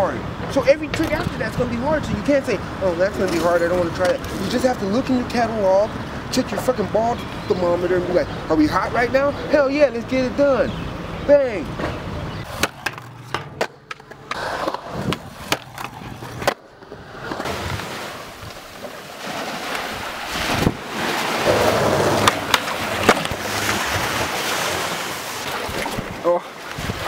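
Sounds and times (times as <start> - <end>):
skateboard clacks and knocks: 11.8 - 17.8, 21.4 - 23.8
small waves washing on beach: 17.4 - 27.0.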